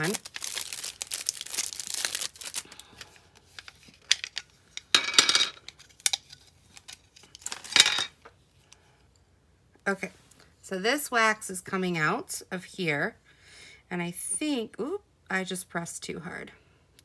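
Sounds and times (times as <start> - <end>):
plastic bag crinkling: 0.0 - 4.6, 5.6 - 8.0.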